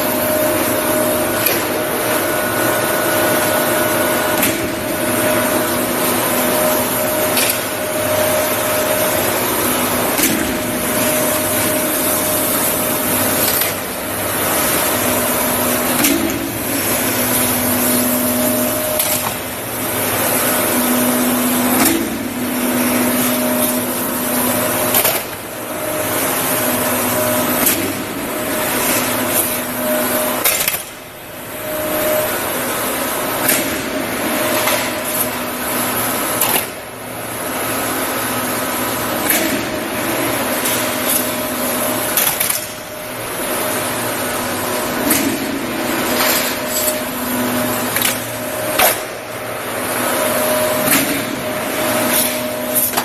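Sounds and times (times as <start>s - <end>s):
machine low hum: 0.0s - 53.0s.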